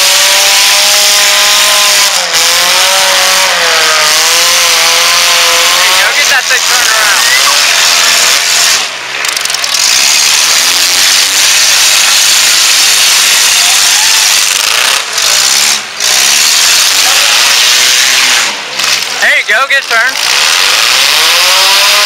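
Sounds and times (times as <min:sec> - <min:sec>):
car engines revving hard: 0:00.0 - 0:22.0.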